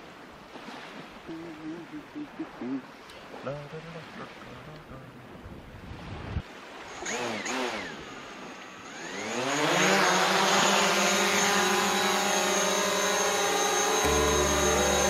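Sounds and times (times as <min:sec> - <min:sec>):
drone propellers buzzing: 0:08.8 - 0:15.0.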